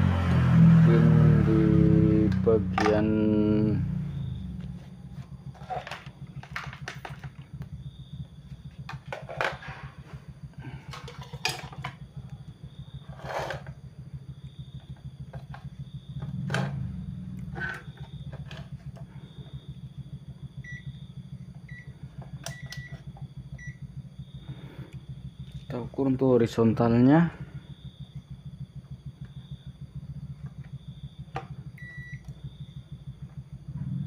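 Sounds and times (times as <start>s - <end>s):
steady low hum: 0.0s - 34.0s
multimeter high beeps: 20.6s - 21.0s, 21.7s - 23.0s, 23.6s - 23.8s, 31.8s - 32.4s.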